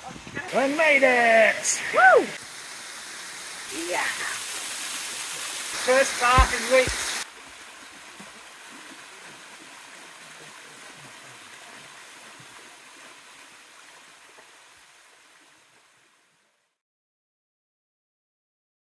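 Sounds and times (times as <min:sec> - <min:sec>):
waterfall splashing onto rock: 0:00.5 - 0:13.1.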